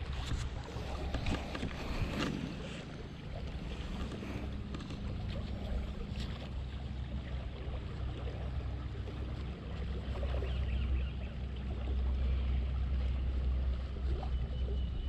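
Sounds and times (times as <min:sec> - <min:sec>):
wind buffeting microphone: 0:00.0 - 0:07.1.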